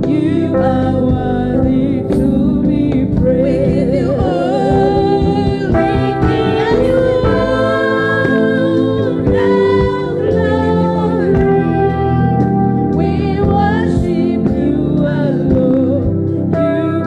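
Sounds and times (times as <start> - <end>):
singers: 0.0 - 17.0
woman singing into microphone: 0.0 - 17.0
band playing: 2.9 - 14.6.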